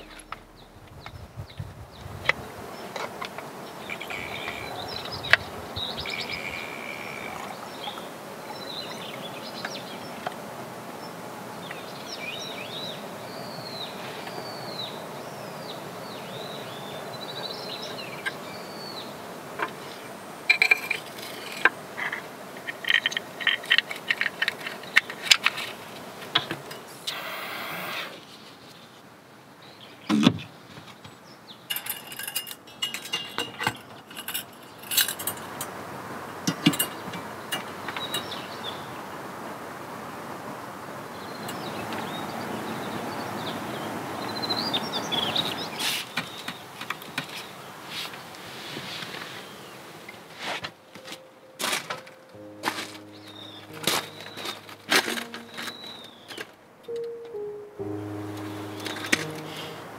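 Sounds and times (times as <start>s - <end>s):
birds chirping: 0.0s - 10.4s, 11.0s - 28.9s, 29.6s - 35.7s, 36.3s - 39.3s, 41.0s - 48.3s, 50.9s - 59.9s
outdoor background noise: 0.0s - 59.9s
small metal and glass clicks: 20.5s - 25.8s, 31.7s - 35.7s, 36.4s - 38.4s.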